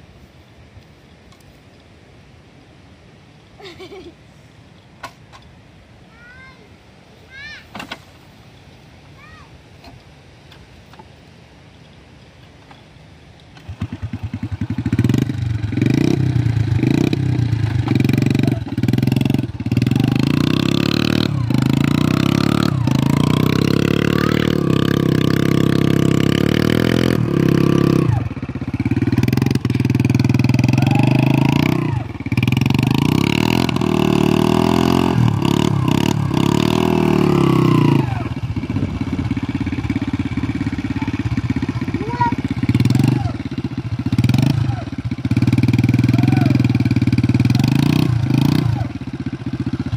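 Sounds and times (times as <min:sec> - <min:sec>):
small motorcycle engine revving: 0:13.6 - 0:49.9.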